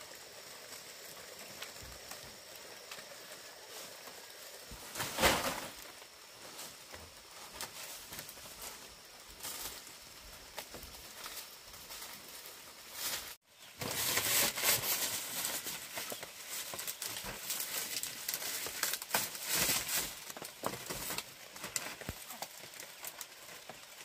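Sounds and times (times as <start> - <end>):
dry leaves rustling: 0.0 - 24.0.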